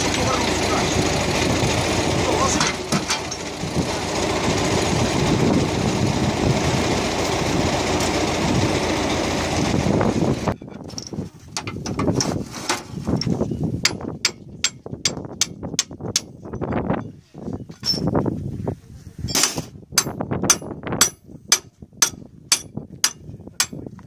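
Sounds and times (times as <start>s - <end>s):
hand tools tapping metal: 2.6s - 3.5s, 13.2s - 17.1s, 19.3s - 23.8s.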